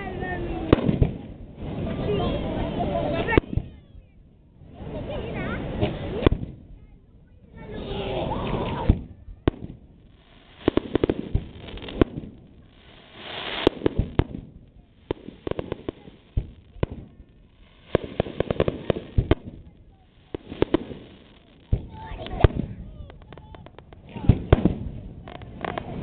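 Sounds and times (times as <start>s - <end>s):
firework shells bursting with bangs: 8.4s - 26.0s
rapid crackling pops: 8.4s - 26.0s.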